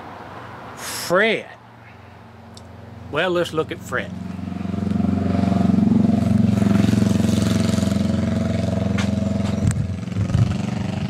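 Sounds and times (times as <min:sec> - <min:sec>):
vehicle engine running: 0:02.3 - 0:11.0.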